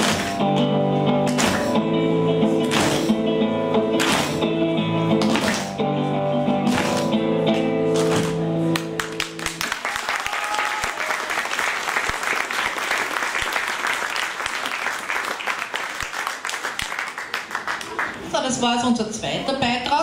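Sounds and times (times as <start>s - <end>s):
audience applauding: 8.0s - 18.3s.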